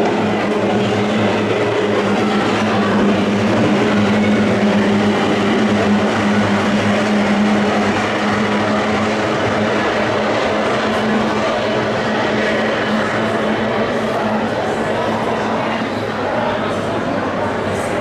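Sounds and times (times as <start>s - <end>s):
outboard engines running at speed: 0.0s - 13.7s.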